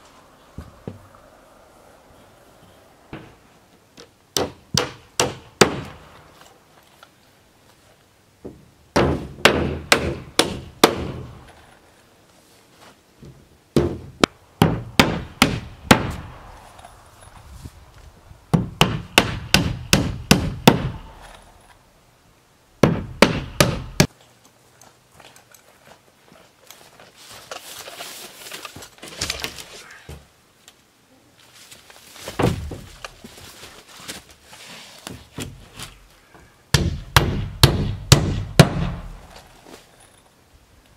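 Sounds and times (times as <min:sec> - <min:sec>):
hammer driving nails into wood: 0:09.0 - 0:11.3, 0:18.6 - 0:21.4, 0:22.8 - 0:24.1, 0:36.7 - 0:39.1.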